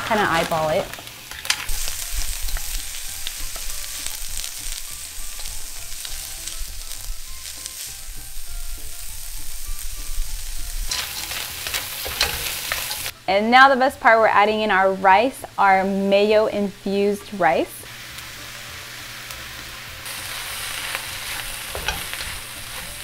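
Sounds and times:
food sizzling in a wok: 0.0s - 23.0s
wooden spatula scraping wok: 10.7s - 13.1s, 20.1s - 23.0s.

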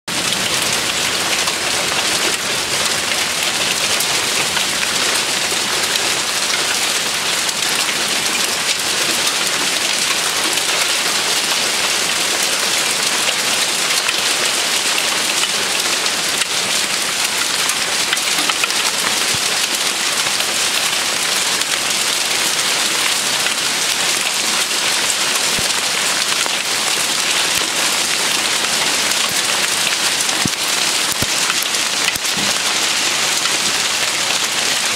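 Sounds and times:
hail pattering on leaves and soil: 0.1s - 34.9s.

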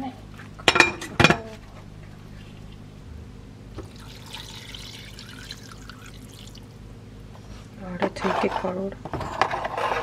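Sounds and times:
low steady hum: 0.0s - 10.0s
soup pouring into a pot: 3.8s - 6.8s.

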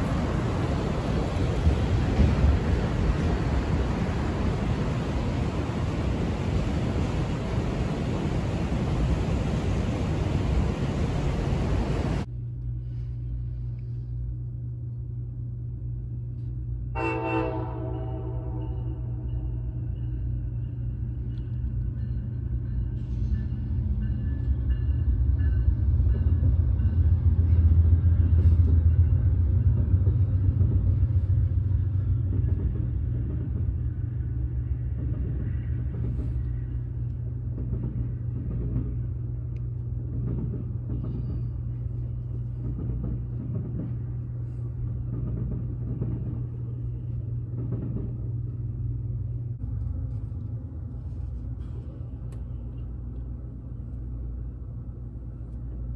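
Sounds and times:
train cars clacking: 0.0s - 12.3s, 17.0s - 48.8s
diesel locomotives rumbling past: 0.0s - 55.9s.

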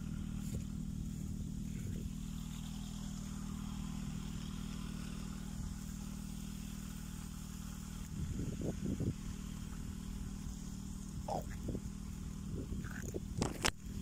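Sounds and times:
engine humming steadily: 0.0s - 14.0s.

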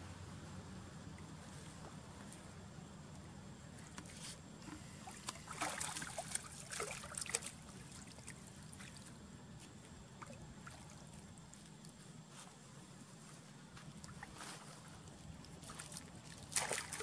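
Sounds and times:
steady low hum: 0.0s - 17.0s
water splashing and dripping: 5.0s - 9.1s, 15.1s - 17.0s.

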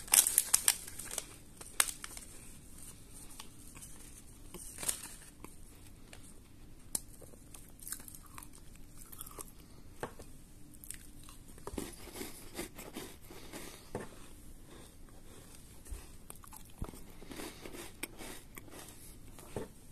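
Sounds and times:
biscuits being bitten and chewed: 5.2s - 9.7s, 10.6s - 13.9s, 14.9s - 19.5s.

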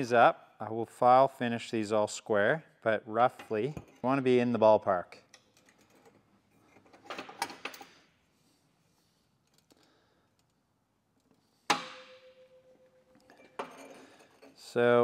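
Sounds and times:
ringing metallic clank: 11.7s - 14.2s.

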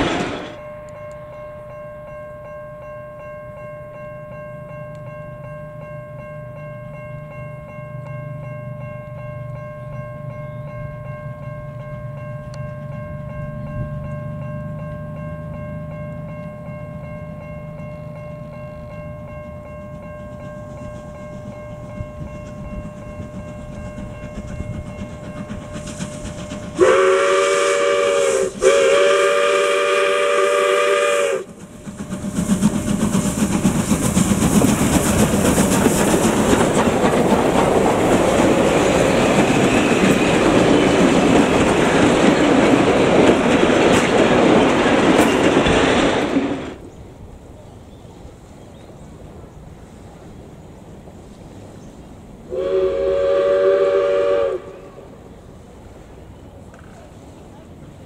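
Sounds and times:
train passing with loud rush: 0.0s - 58.0s
steam whistle blasts: 26.8s - 31.6s, 52.5s - 55.2s.

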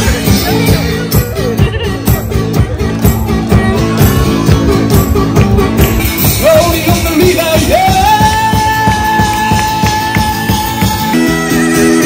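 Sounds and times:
acoustic guitar strumming: 0.0s - 12.0s
person singing into a microphone: 6.4s - 12.0s.

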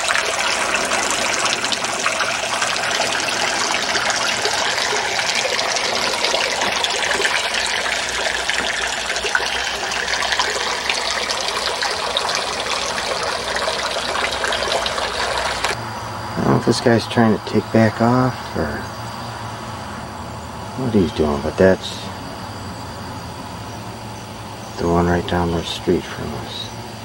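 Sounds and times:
fountain water trickling and splashing: 0.0s - 15.8s, 20.8s - 22.9s, 24.8s - 26.9s.

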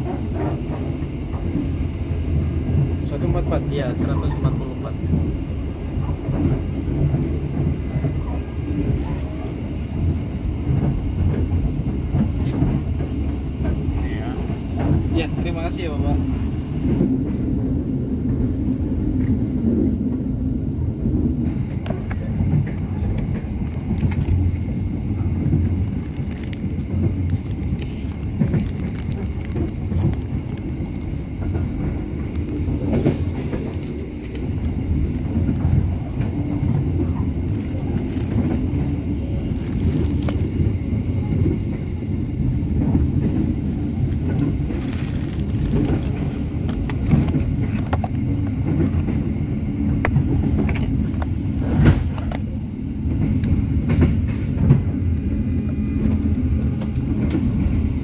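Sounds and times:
train rumbling: 0.0s - 58.0s.

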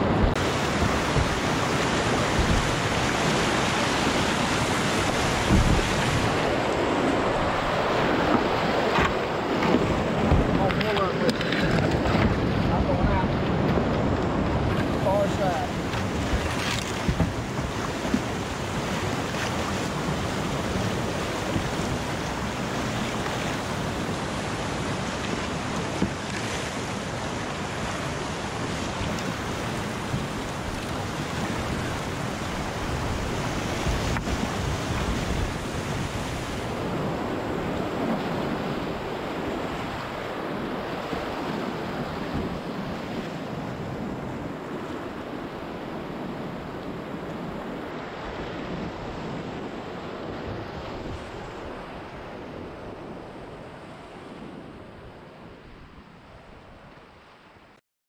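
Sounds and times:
water rushing over rocks: 0.0s - 52.2s.

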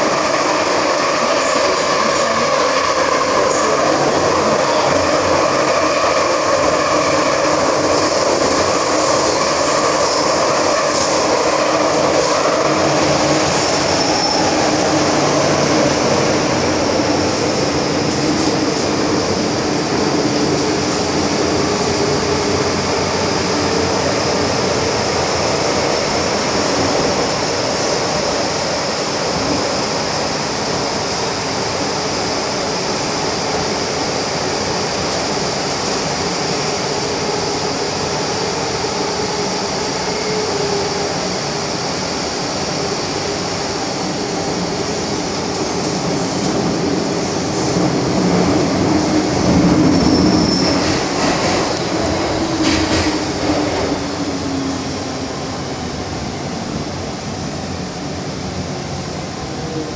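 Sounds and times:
metro train wheels rumbling on rail: 0.0s - 59.9s.

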